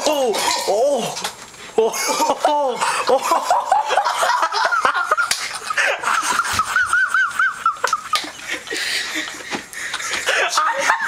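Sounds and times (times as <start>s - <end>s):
young men laughing: 1.8s - 11.0s.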